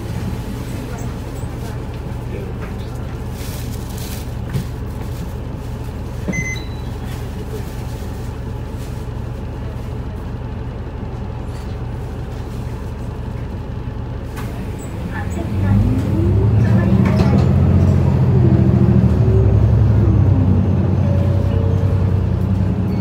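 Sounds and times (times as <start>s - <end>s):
bus diesel engine idling: 0.0s - 23.0s
short electronic beep: 6.4s - 6.9s.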